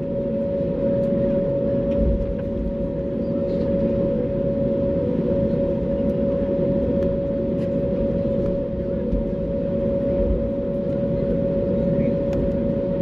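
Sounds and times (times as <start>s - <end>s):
airplane cabin engine rumble: 0.0s - 13.0s
constant engine whine: 0.0s - 13.0s.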